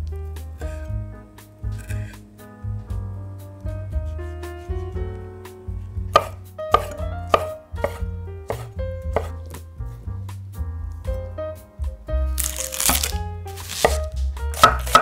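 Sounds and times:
background music: 0.0 - 15.0
knife chopping on wooden board: 1.8 - 2.2, 6.1 - 9.6, 12.4 - 15.0.

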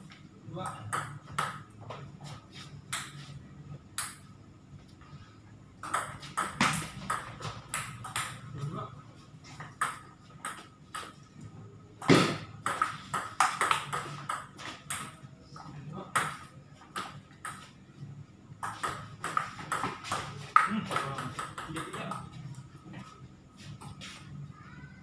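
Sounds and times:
ball hitting table tennis bats: 0.7 - 2.2, 2.8 - 3.3, 3.9 - 4.3, 5.8 - 8.7, 9.5 - 11.2, 12.0 - 17.8, 18.6 - 22.7
ball bouncing on table: 0.8 - 1.7, 5.8 - 8.5, 9.6 - 11.2, 12.0 - 15.2, 18.6 - 22.3.

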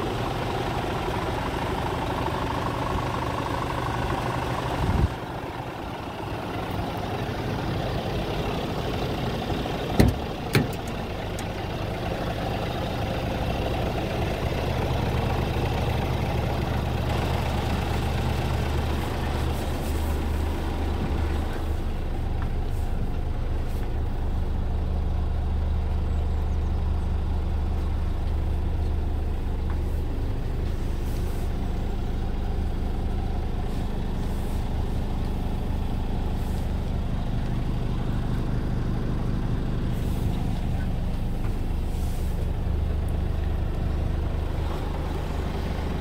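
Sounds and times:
diesel truck engine idling: 0.0 - 46.0.

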